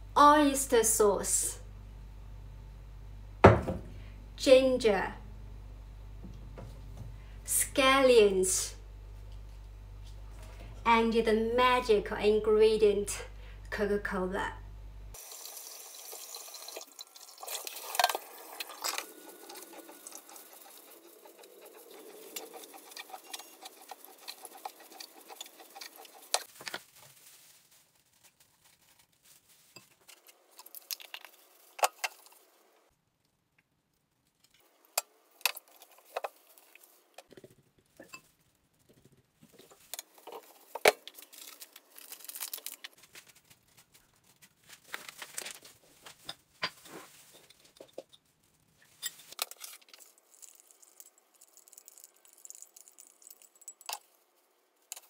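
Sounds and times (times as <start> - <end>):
water running from a tap: 15.2 - 20.7.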